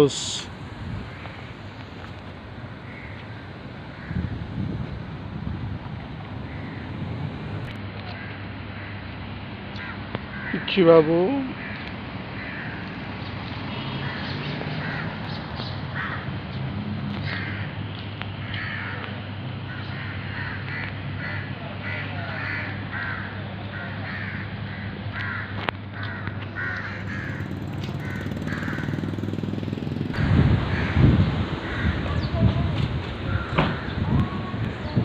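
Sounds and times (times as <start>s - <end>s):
steady low hum: 0.0s - 9.7s
crows cawing: 0.1s - 4.9s, 6.4s - 10.8s, 11.4s - 13.1s, 13.8s - 16.5s, 17.1s - 17.8s, 18.4s - 29.8s, 30.7s - 32.4s, 33.2s - 34.3s
low rumble: 0.4s - 7.8s, 29.4s - 35.0s.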